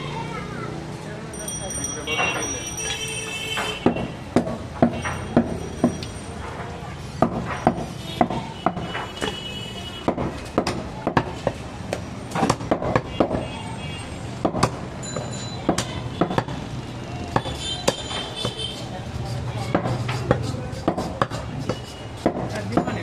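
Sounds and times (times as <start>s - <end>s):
knife chopping meat on wood: 7.2s - 9.0s, 10.0s - 13.4s, 14.4s - 14.8s, 17.3s - 23.0s.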